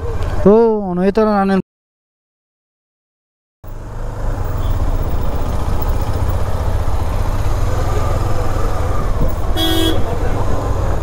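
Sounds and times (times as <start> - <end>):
motorcycle engine rumble: 3.6 - 11.0
vehicle horn toot: 4.6 - 4.8, 9.5 - 10.1.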